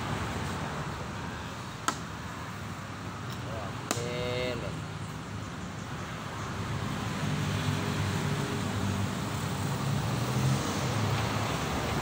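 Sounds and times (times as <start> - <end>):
road traffic: 0.0 - 12.0
vehicle engine humming: 0.0 - 12.0.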